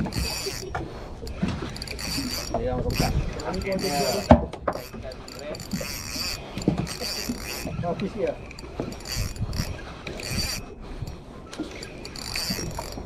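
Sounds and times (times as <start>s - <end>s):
fishing reel gears whirring: 0.0s - 13.0s.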